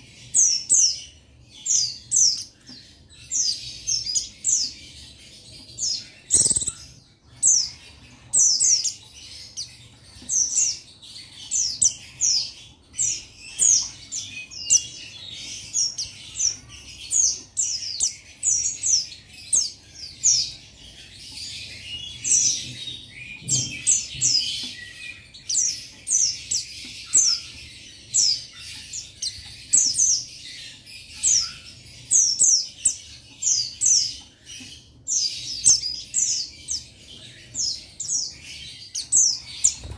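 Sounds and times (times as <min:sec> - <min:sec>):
bird high falling chirps: 0:06.3 - 0:07.0.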